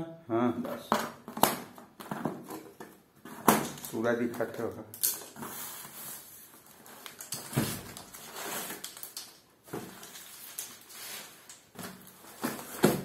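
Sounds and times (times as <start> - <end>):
cardboard parcel rustling and scraping: 5.3 - 9.0, 9.6 - 13.0.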